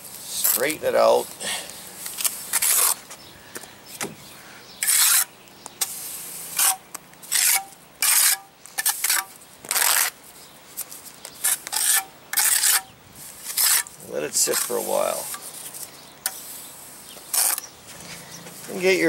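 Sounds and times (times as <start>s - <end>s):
trowel scraping mortar: 2.1s - 3.2s, 4.8s - 10.2s, 11.4s - 18.1s.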